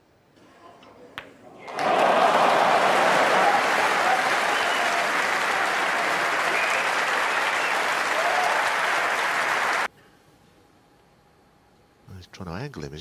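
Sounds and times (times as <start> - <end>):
audience clapping: 1.6 - 9.9.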